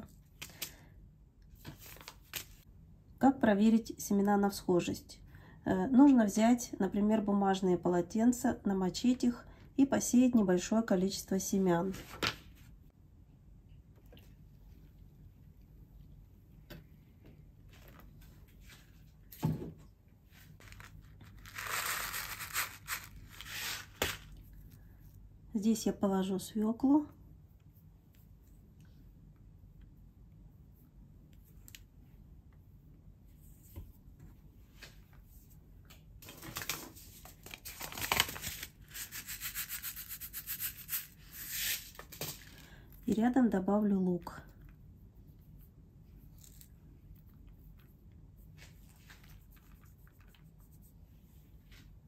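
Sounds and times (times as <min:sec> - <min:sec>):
paper packet crinkling: 0:20.5 - 0:24.4, 0:36.2 - 0:42.6.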